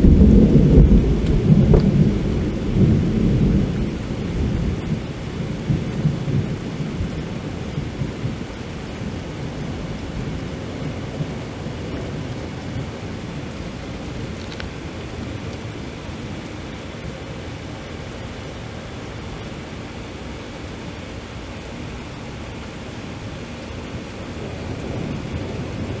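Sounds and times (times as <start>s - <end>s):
rolling thunder: 0.0s - 16.5s, 23.7s - 26.0s
rain hiss: 0.0s - 26.0s.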